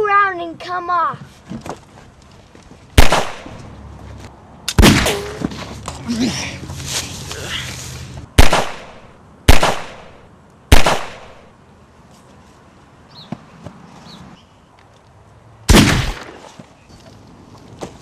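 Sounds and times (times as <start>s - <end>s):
gunshots with ringing tail: 15.7s - 16.3s.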